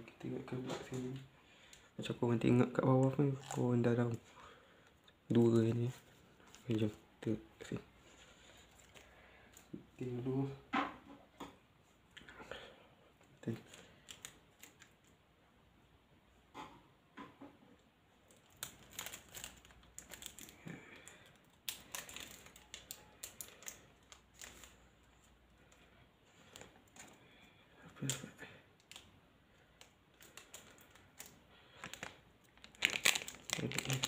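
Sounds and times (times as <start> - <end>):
foil wrapper crinkling and tearing: 18.3 - 24.8, 29.8 - 34.0.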